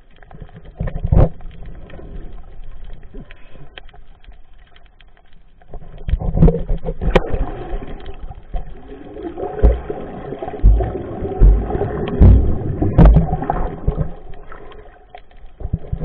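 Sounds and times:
underwater churning and bubbling: 0:00.0 - 0:16.0
dull low thumps: 0:10.6 - 0:14.1.

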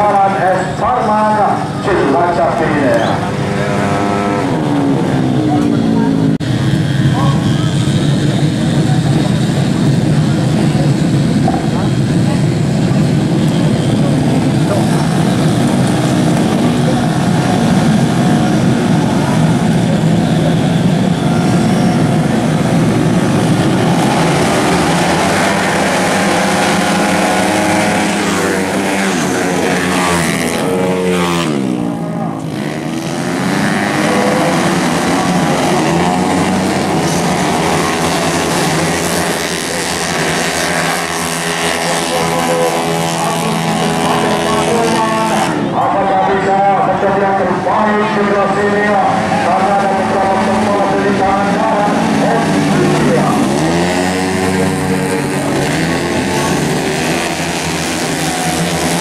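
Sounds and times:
racing scooters revving: 0:00.0 - 0:59.0.

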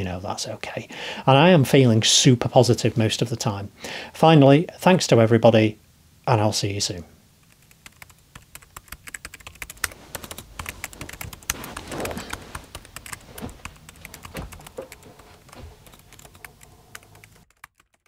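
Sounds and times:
rapid clicking and tapping: 0:07.4 - 0:18.0.

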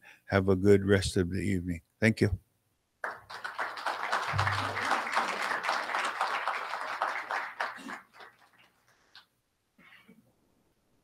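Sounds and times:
audience applauding: 0:03.0 - 0:08.9.

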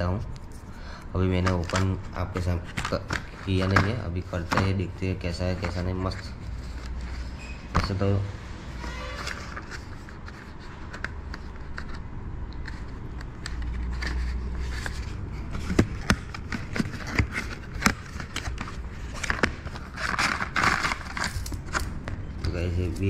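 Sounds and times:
packaging rustling and scraping: 0:00.0 - 0:23.0.

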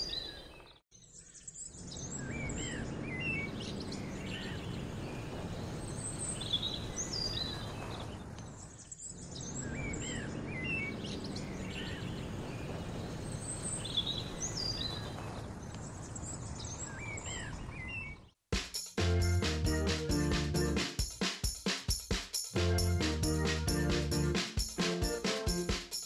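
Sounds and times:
birds chirping and whistling: 0:00.0 - 0:00.5, 0:01.4 - 0:12.4, 0:13.0 - 0:15.2, 0:22.6 - 0:24.4.

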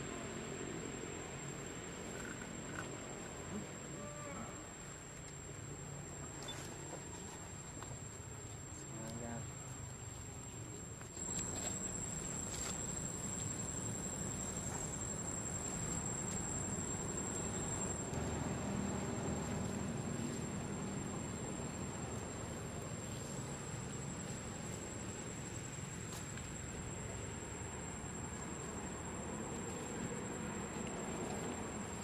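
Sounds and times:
high insect drone: 0:00.0 - 0:32.0.

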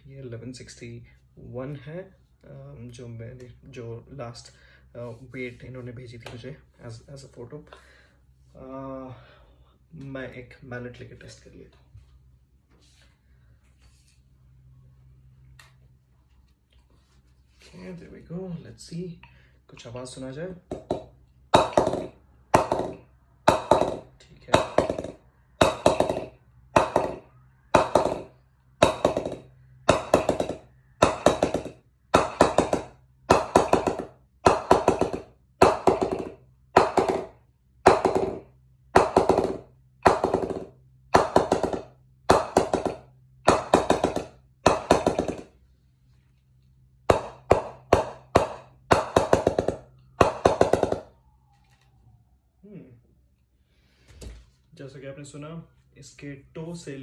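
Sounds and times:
wooden mallet knocking bat: 0:20.6 - 0:45.6, 0:47.1 - 0:51.2
mallet rebounds: 0:20.7 - 0:45.5, 0:47.1 - 0:51.1.

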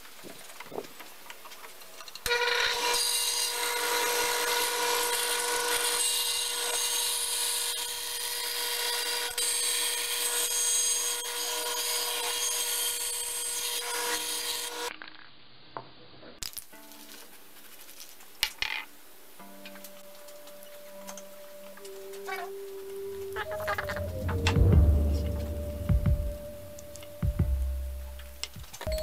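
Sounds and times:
band saw cutting wood: 0:02.3 - 0:14.9.

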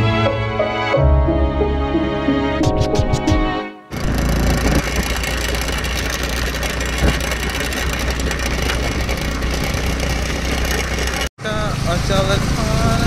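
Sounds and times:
motorbike engine running: 0:03.9 - 0:13.0
tyres on wet dirt road: 0:03.9 - 0:13.0.

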